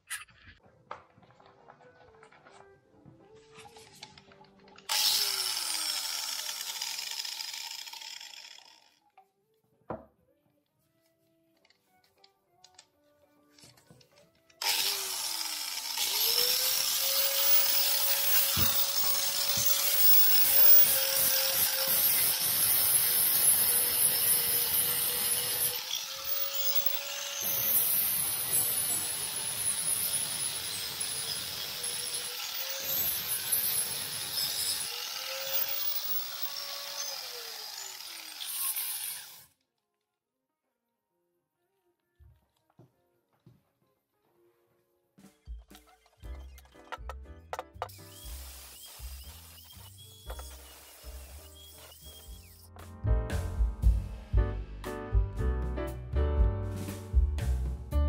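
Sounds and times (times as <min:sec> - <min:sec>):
angle grinder whining: 0:04.9 - 0:09.1, 0:14.6 - 0:39.5, 0:46.4 - 0:52.7.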